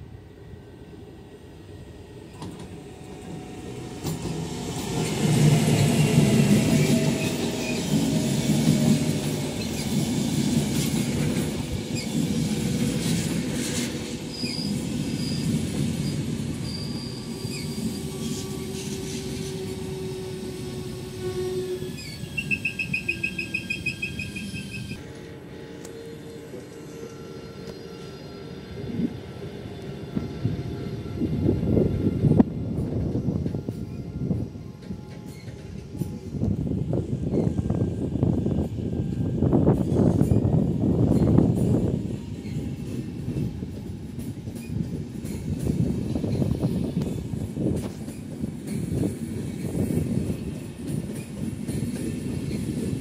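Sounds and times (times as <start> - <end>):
passenger train passing: 0.0 - 53.0
train wheel squeals: 2.3 - 53.0
fast-pulsing high squeal: 21.8 - 25.0.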